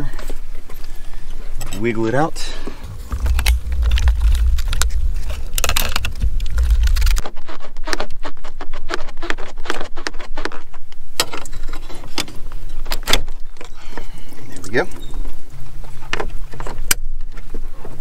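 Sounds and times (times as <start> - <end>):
low rumble: 2.5 - 7.4.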